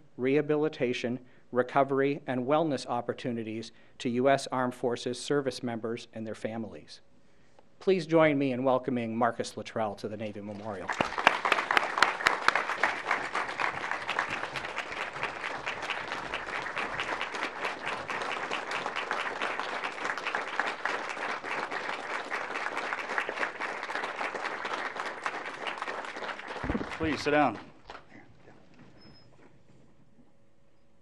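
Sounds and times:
audience applauding: 10.8s - 28.1s.

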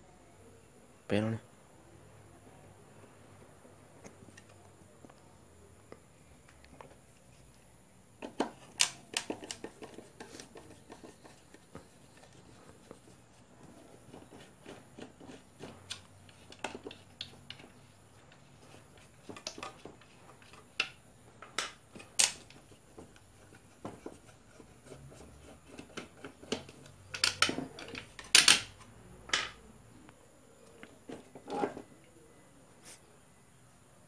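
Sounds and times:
plastic parts handled on workbench: 8.2s - 29.6s, 30.7s - 31.9s.

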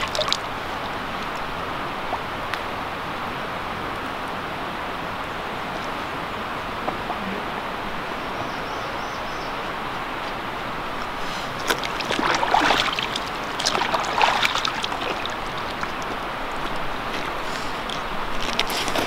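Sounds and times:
stream water rushing: 0.0s - 19.0s
bottle filling gurgling in water: 11.6s - 16.0s.

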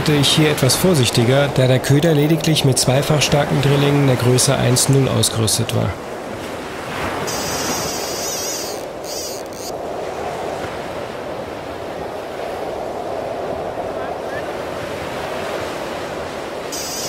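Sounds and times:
waves breaking on beach: 0.0s - 17.0s
wind buffeting microphone: 6.0s - 16.9s.

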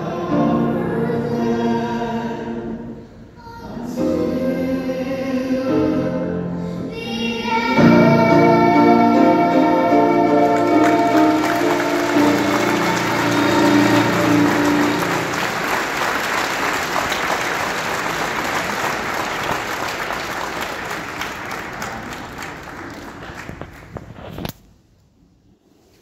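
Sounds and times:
audience applauding: 10.2s - 24.2s.

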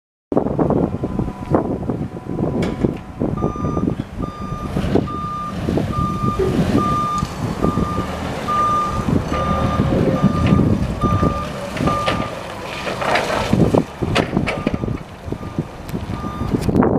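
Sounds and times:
forklift engine running and rattling: 0.4s - 16.9s
reversing alarm beeps: 3.4s - 12.3s, 14.6s - 16.6s.

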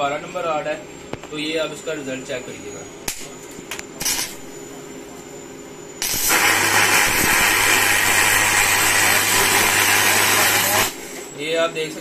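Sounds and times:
welding arc burning: 4.0s - 4.5s, 6.0s - 11.1s.

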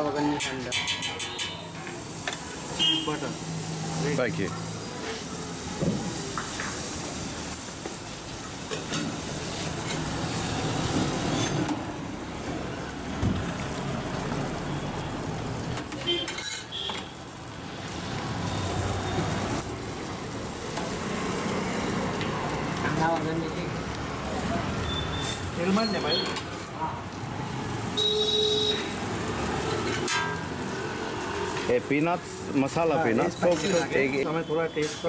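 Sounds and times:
buns sizzling on a griddle: 0.0s - 35.0s
steel spoon clinking on pots: 0.3s - 2.4s, 33.2s - 34.0s.

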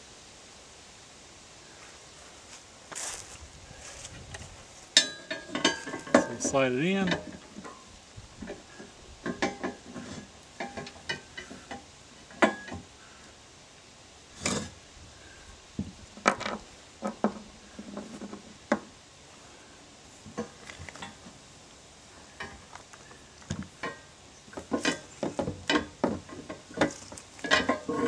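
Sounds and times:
steel hardware clinking: 5.0s - 7.8s.

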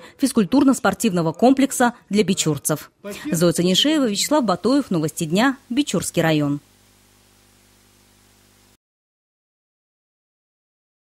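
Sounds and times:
faint steady hiss: 3.0s - 8.8s
low hum: 4.5s - 8.8s.

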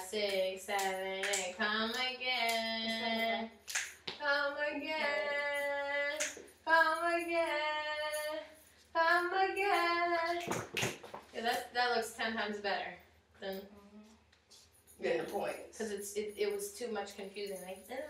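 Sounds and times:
sharp knocks or claps: 3.7s - 4.2s, 10.4s - 11.3s.

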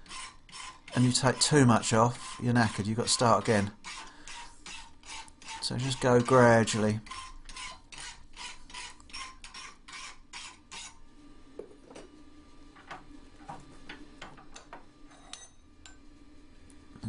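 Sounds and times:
hand file rasping on steel: 0.0s - 11.0s.

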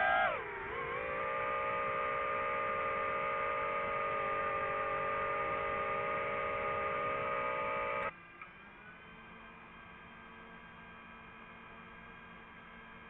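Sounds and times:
drone motors whining: 0.0s - 8.1s
faint hum: 0.0s - 8.1s.

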